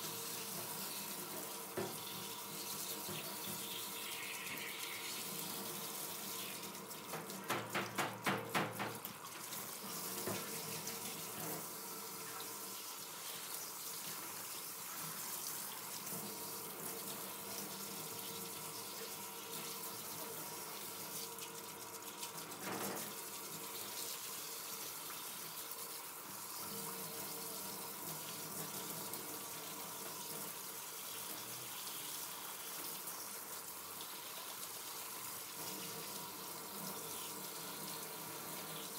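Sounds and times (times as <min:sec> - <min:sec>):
water running into sink: 0:00.0 - 0:38.9
knock: 0:07.5 - 0:09.0.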